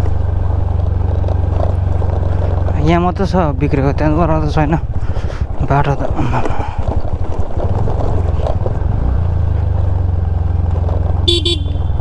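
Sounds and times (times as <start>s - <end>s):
scooter engine running: 0.0s - 12.0s
rattle from bumps: 5.0s - 8.9s.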